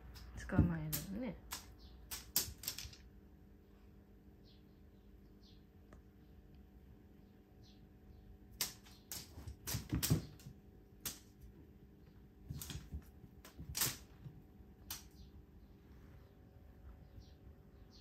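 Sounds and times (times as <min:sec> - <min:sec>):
cat paws tapping on wooden floor: 0:08.6 - 0:11.8, 0:12.4 - 0:15.2.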